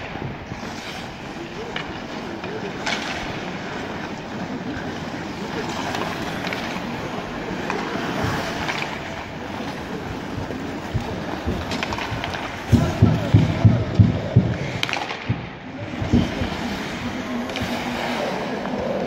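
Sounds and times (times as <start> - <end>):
hockey sticks and puck clicking: 0.0 - 19.0
skates scraping on ice: 0.0 - 19.0.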